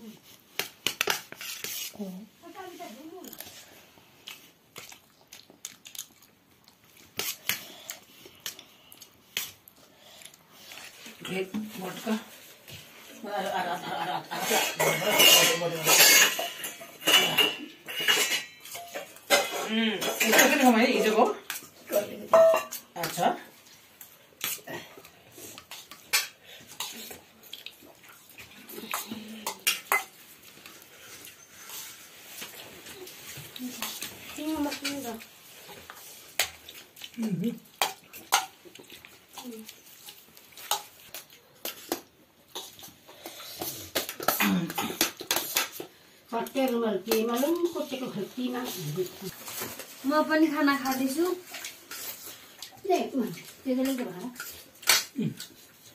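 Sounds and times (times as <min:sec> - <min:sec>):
dishes and utensils clinking: 0:14.3 - 0:23.3, 0:28.8 - 0:30.3.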